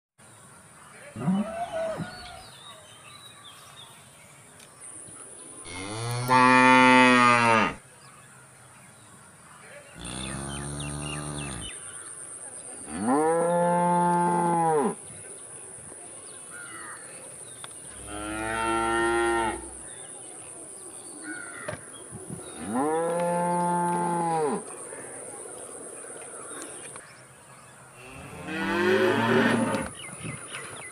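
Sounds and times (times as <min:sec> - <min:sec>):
cows mooing: 0:05.7 - 0:07.8, 0:10.0 - 0:11.7, 0:18.0 - 0:19.8, 0:28.1 - 0:29.9.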